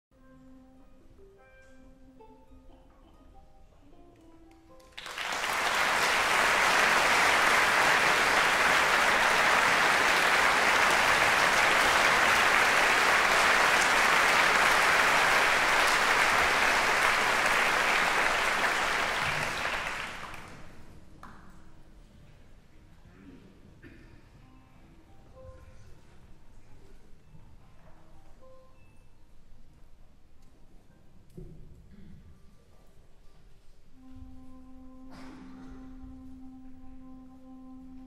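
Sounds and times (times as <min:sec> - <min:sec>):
audience applauding: 0:04.8 - 0:20.9.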